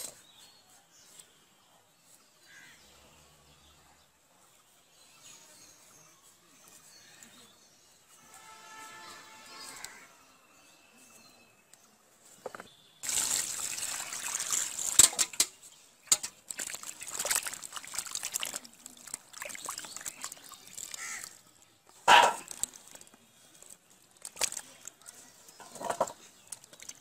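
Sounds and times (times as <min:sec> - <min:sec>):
hands sloshing in water basin: 0:13.0 - 0:15.4, 0:16.1 - 0:21.4.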